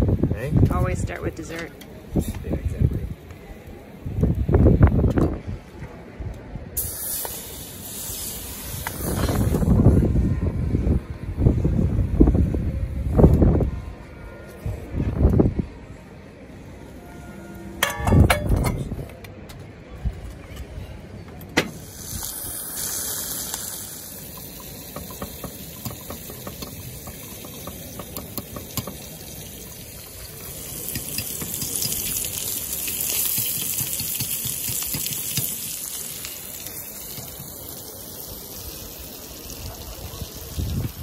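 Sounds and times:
vegetables sizzling in a pan: 0:21.7 - 0:41.0.

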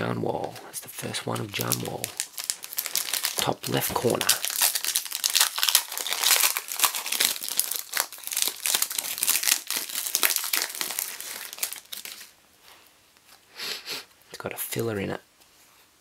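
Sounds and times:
foil wrapper crinkling: 0:01.1 - 0:12.4.

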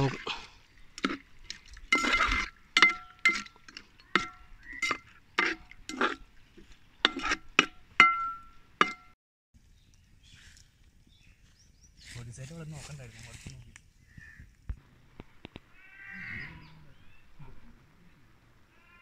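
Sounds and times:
metal ladle knocking on pot: 0:02.8 - 0:05.6, 0:07.1 - 0:09.1.

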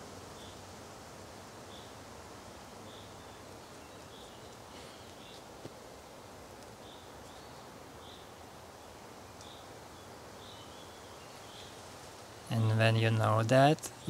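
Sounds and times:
steady low hiss: 0:00.0 - 0:14.0
small tick: 0:06.6 - 0:07.4.

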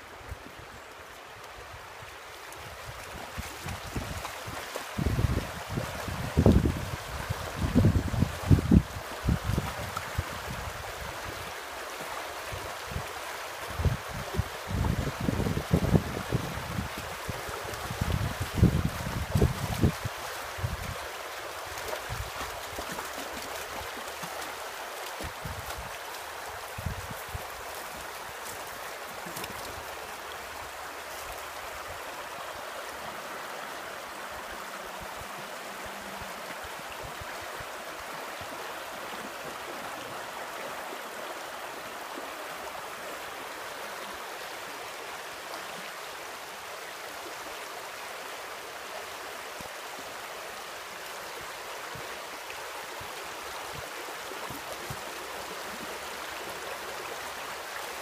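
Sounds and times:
creek rippling over rocks: 0:00.0 - 0:58.0
wind rumble on microphone: 0:02.6 - 0:11.5, 0:12.5 - 0:21.1, 0:25.2 - 0:27.7.

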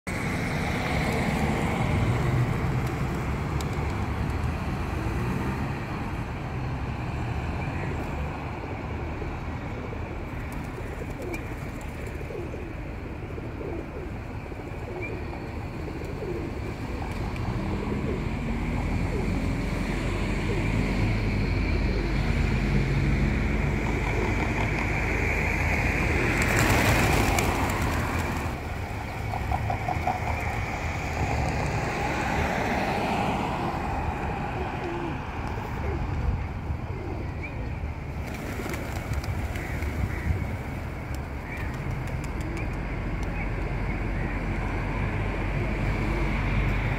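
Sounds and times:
road traffic rumble: 0:00.1 - 0:46.9
pigeons cooing: 0:09.7 - 0:22.5, 0:23.6 - 0:30.7, 0:32.6 - 0:40.8, 0:41.4 - 0:44.5.

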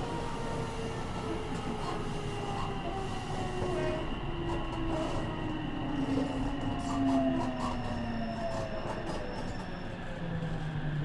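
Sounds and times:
train wheels rumbling on rails: 0:00.0 - 0:11.0.

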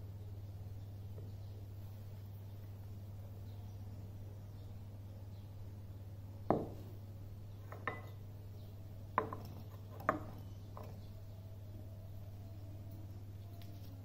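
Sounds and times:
steady low hum: 0:00.0 - 0:14.0
glass knocking on wooden bench: 0:06.5 - 0:06.8, 0:07.6 - 0:08.2, 0:09.2 - 0:11.0.

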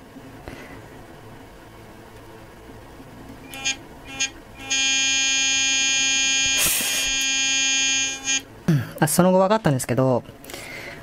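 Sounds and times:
electric toothbrush buzzing: 0:03.5 - 0:08.5.

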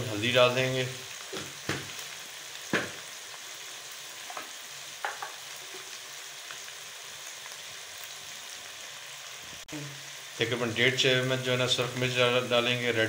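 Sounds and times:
meat sizzling in a pan: 0:00.0 - 0:13.0
spatula knocking on pan: 0:01.3 - 0:02.0, 0:02.7 - 0:03.0, 0:04.3 - 0:05.4.

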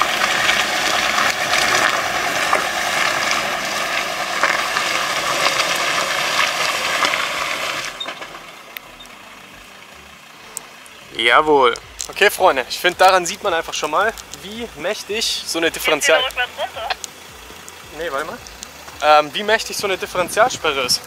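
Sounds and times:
tyres slipping on dirt and stones: 0:11.6 - 0:15.0, 0:15.7 - 0:19.1.

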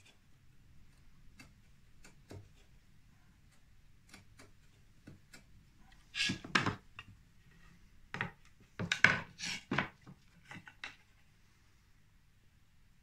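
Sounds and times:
wooden pieces knocking: 0:08.1 - 0:11.0.

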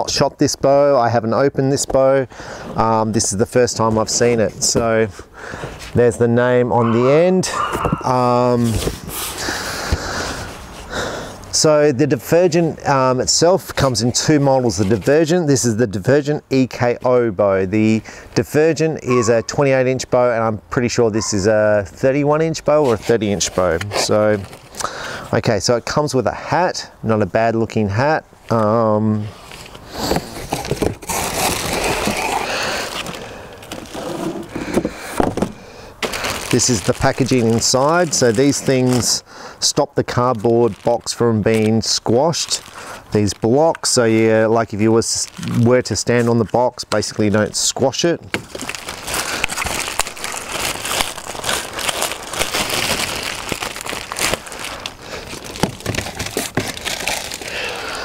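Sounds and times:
cardboard packaging scraping: 0:29.3 - 0:39.2, 0:48.4 - 0:57.6
plastic wrapping crinkling: 0:30.4 - 0:34.6, 0:36.0 - 0:39.2, 0:40.1 - 0:46.5, 0:48.3 - 0:58.0.

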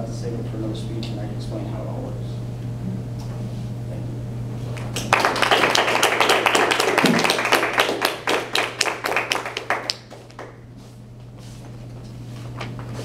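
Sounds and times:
audience applauding: 0:04.8 - 0:10.6.

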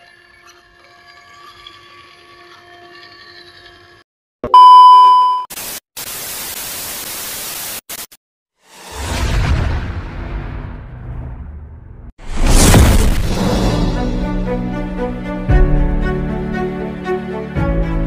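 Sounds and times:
loud steady beep: 0:04.5 - 0:05.5
rising whoosh with low rumble: 0:08.8 - 0:14.5.

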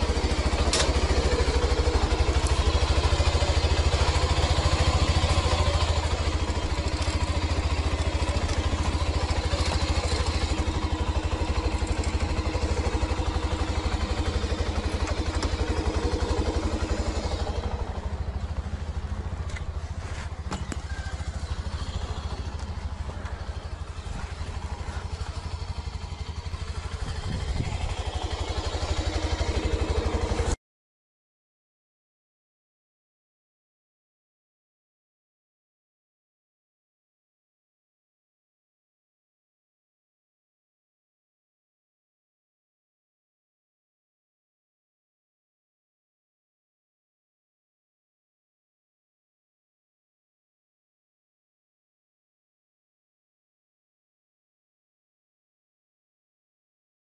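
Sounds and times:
motorcycle engine running: 0:00.0 - 0:30.6.

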